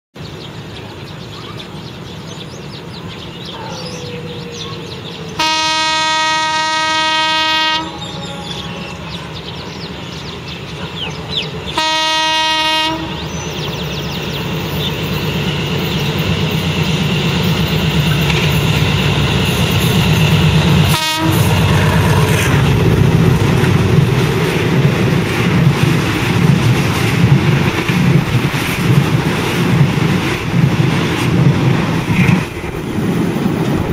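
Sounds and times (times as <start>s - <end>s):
train engine and wheels rumbling: 0.2s - 33.9s
locomotive horn blasts: 5.4s - 9.1s, 11.8s - 13.3s, 20.8s - 21.7s.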